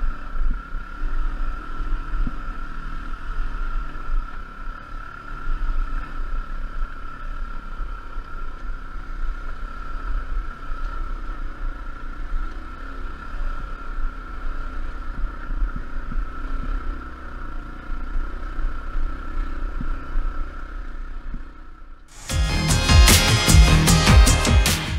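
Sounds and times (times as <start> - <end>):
dirt bike engine running: 0.0 - 24.9
music: 22.2 - 24.9.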